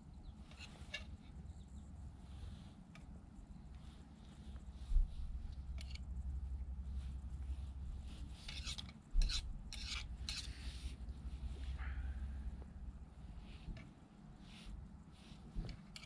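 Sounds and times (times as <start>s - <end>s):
steady low rumble: 0.0s - 16.0s
utensil scraping metal pot: 8.4s - 10.9s.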